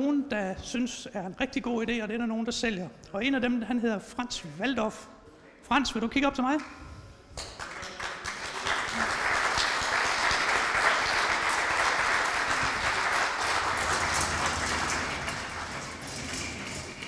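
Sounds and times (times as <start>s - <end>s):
audience applauding: 7.4s - 17.0s.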